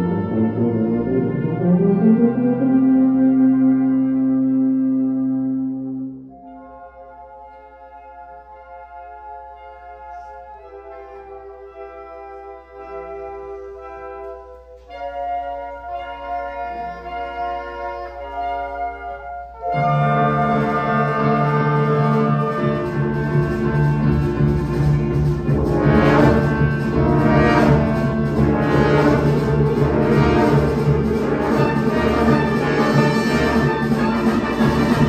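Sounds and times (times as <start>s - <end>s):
wind band playing chords: 0.0s - 35.0s.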